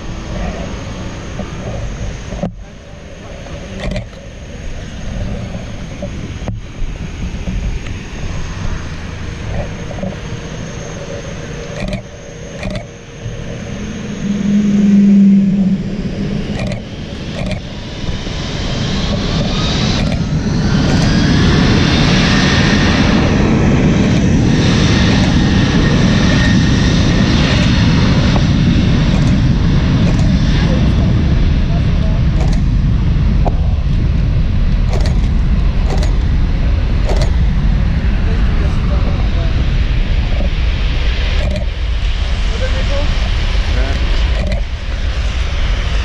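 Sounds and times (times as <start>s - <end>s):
short low hum: 0.0s - 18.2s, 27.4s - 42.0s
jet engines spooling up: 0.0s - 46.0s
outdoor noise: 0.0s - 46.0s
sharp clicks: 3.8s - 4.2s, 11.8s - 13.0s, 16.5s - 17.7s, 19.9s - 21.2s, 24.0s - 24.3s, 29.1s - 30.4s, 32.4s - 32.7s, 34.9s - 36.2s, 37.1s - 37.4s, 41.4s - 41.7s, 44.3s - 44.7s.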